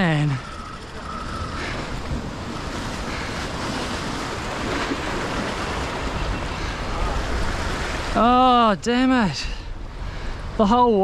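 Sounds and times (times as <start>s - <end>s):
surf washing against rock: 0.0s - 8.3s
wind buffeting microphone: 0.3s - 8.3s.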